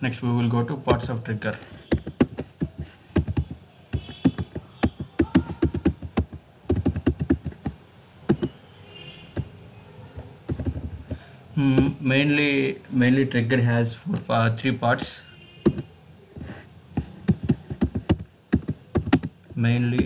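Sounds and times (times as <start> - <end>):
computer keyboard typing: 1.9 - 8.6, 10.2 - 11.2, 15.6 - 15.9, 17.2 - 20.0.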